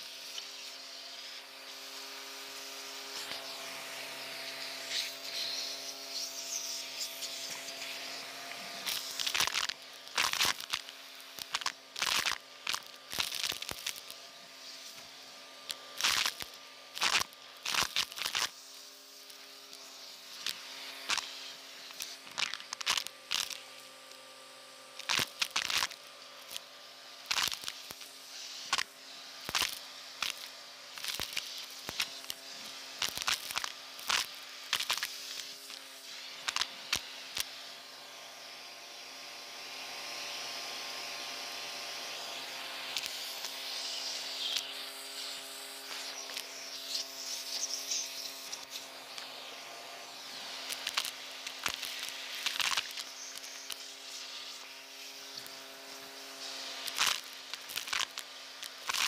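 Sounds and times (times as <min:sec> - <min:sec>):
vacuum cleaner motor hum: 0:00.0 - 0:59.0
debris rattling up nozzle: 0:08.8 - 0:14.2, 0:15.7 - 0:23.8, 0:25.0 - 0:26.6, 0:27.2 - 0:37.5, 0:50.2 - 0:59.0.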